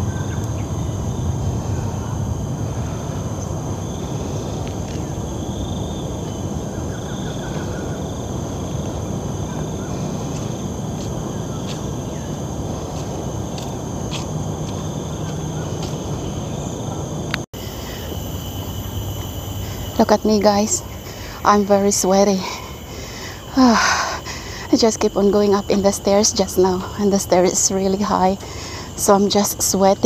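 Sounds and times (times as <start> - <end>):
high-pitched insect drone: 0.0 - 30.0.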